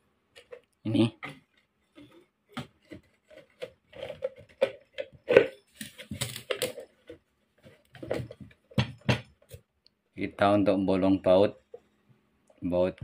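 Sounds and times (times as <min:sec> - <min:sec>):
plastic jar knocking against metal: 0:07.9 - 0:09.6.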